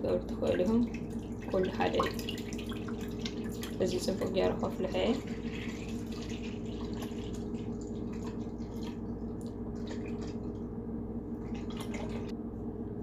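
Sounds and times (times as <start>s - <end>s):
milk pouring into a metal pot: 0.6s - 9.1s.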